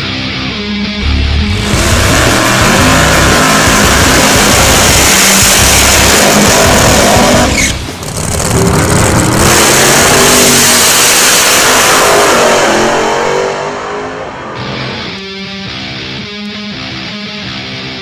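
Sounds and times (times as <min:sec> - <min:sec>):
drag racing engine full throttle: 0:01.0 - 0:15.2
second drag car racing: 0:01.0 - 0:15.2.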